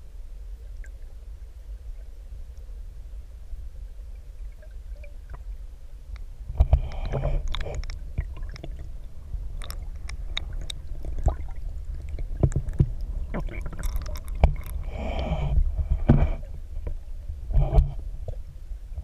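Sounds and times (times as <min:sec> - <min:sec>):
underwater river current rumble: 0:00.0 - 0:19.0
sharp clicks and knocks: 0:12.4 - 0:13.0, 0:13.7 - 0:14.8.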